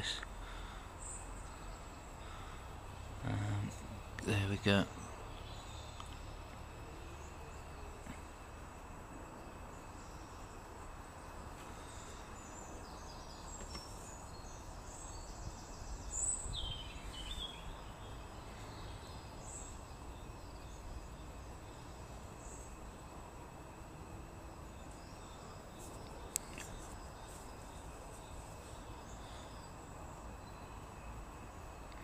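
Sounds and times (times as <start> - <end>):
faint hiss: 0.0 - 32.0
steady low hum: 0.0 - 32.0.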